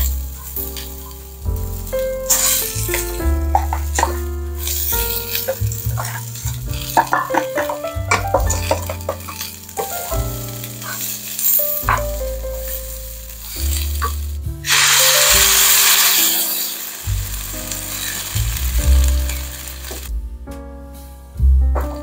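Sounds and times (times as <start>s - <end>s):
food sizzling in frying pan: 0.0s - 20.1s
background music: 0.0s - 22.0s
wooden spatula scraping pan: 2.3s - 14.2s.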